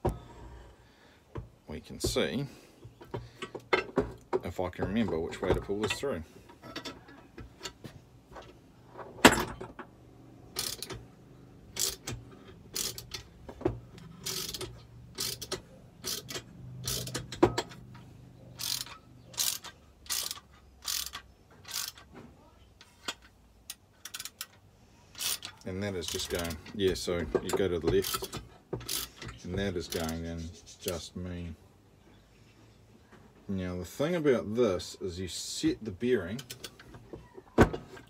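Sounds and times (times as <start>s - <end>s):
wrench ratcheting metallic clicks: 10.5s - 11.1s, 11.7s - 13.4s, 14.0s - 18.0s, 18.6s - 22.1s, 23.0s - 30.2s.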